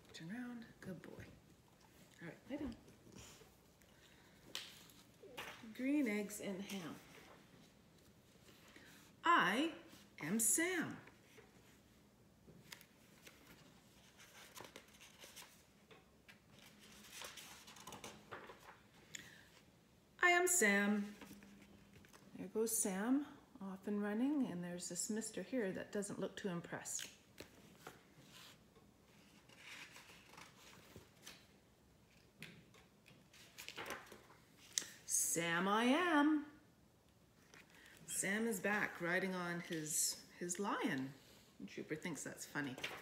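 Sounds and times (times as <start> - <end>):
book pages turning: 12.6 - 18.9, 27.0 - 34.8.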